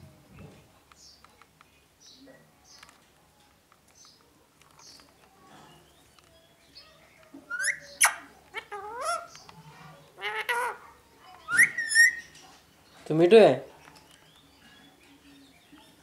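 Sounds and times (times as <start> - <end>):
parakeet calling: 7.5 - 9.4, 10.2 - 12.4
parakeet wavering chatter: 7.5 - 9.5, 10.2 - 12.4.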